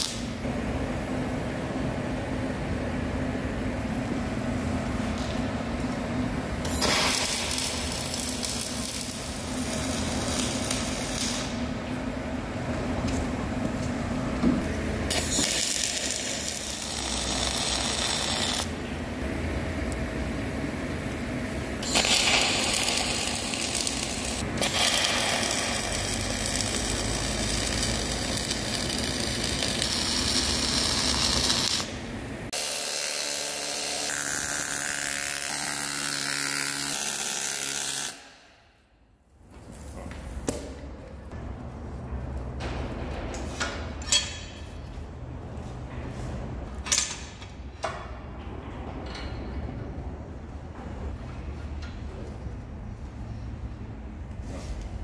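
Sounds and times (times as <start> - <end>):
welding arc crackling and hissing: 6.6 - 11.8, 14.6 - 38.2.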